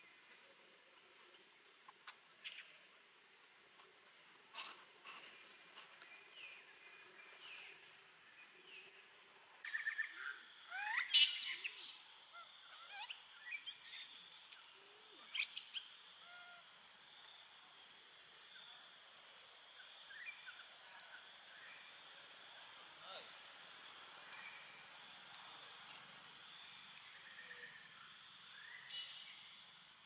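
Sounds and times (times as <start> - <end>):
insect buzzing drone: 9.7 - 30.0.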